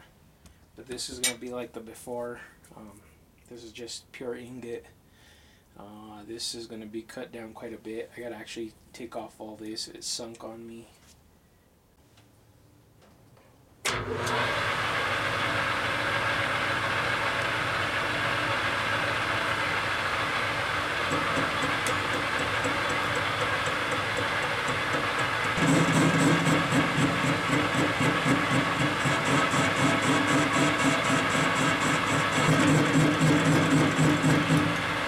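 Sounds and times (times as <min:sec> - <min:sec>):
metal lathe running: 0:13.9 - 0:35.0.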